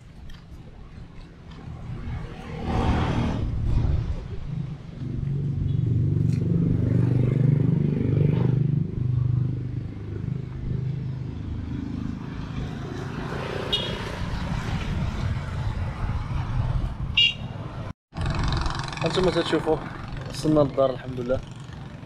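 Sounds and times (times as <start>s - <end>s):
motorcycle engine running: 18.2s - 22.0s.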